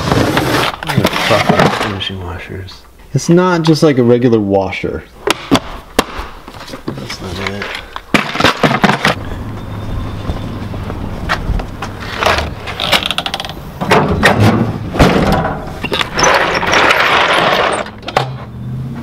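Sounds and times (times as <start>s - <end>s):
plastic boxes clicking and clattering: 6.9s - 9.2s.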